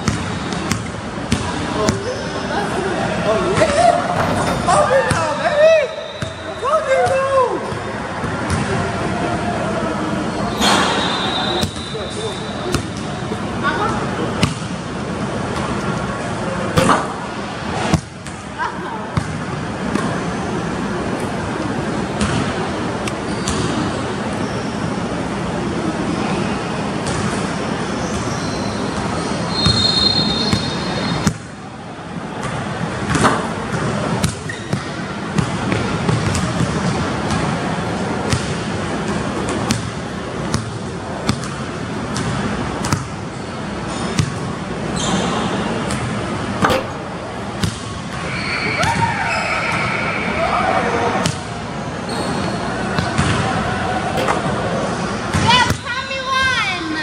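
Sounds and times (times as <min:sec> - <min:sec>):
shoe squeak: 0:05.9 - 0:06.6, 0:10.3 - 0:13.4, 0:23.2 - 0:25.0, 0:27.9 - 0:31.3, 0:34.4 - 0:35.0, 0:43.3 - 0:44.3, 0:44.9 - 0:45.6, 0:48.2 - 0:50.1, 0:52.0 - 0:52.9.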